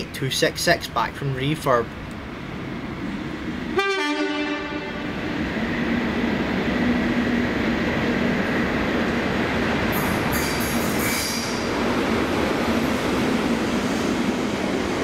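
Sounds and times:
locomotive engine and train running: 0.0 - 15.0
locomotive two-tone horn: 3.8 - 5.1
wheel squeal: 10.0 - 11.7.

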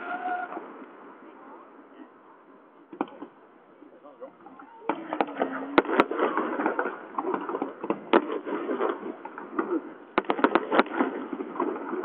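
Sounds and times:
fireworks crackle: 4.9 - 12.0
fireworks shells bursting: 4.9 - 12.0.

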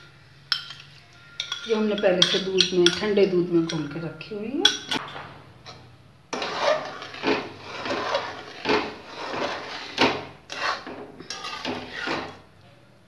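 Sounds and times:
fork scraping metal pan: 5.7 - 12.4.

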